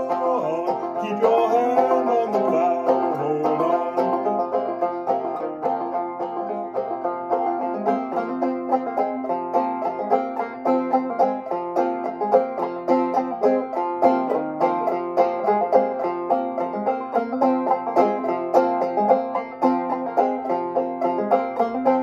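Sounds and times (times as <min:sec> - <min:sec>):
banjo playing: 0:00.0 - 0:22.0.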